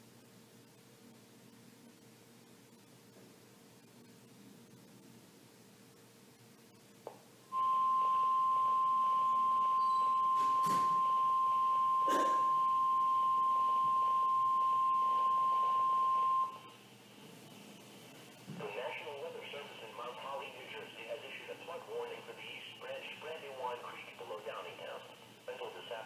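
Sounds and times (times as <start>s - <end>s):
steady alarm beep: 7.5s - 16.7s
faint hiss: 16.4s - 26.0s.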